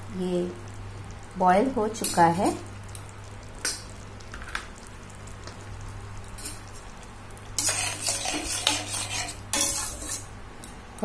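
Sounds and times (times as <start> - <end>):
low steady hum: 0.0 - 11.0
spatula scraping metal pan: 7.6 - 10.3.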